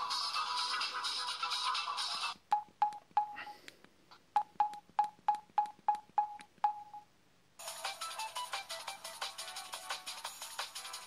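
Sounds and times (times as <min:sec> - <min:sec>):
mobile phone keypad beeps: 0:02.5 - 0:03.6, 0:04.4 - 0:07.1.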